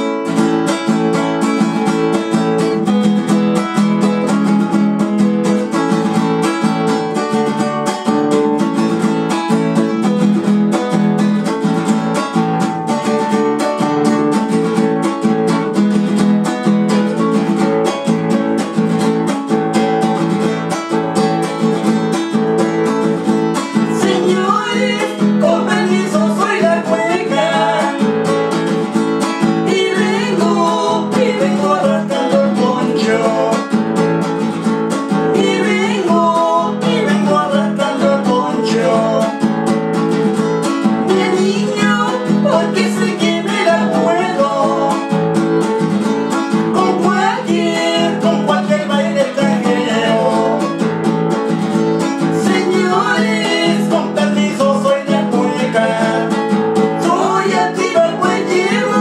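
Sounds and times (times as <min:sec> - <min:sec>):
classical guitar strumming: 0:00.0 - 0:59.0
man and woman singing: 0:23.6 - 0:34.5, 0:35.1 - 0:39.7, 0:41.0 - 0:45.4, 0:46.5 - 0:50.9, 0:52.2 - 0:59.0.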